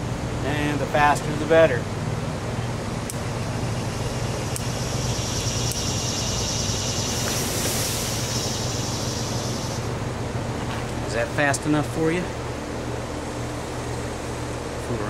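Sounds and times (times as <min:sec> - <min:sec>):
low mechanical hum: 0:00.0 - 0:15.0
black powder burning hiss: 0:04.5 - 0:10.0.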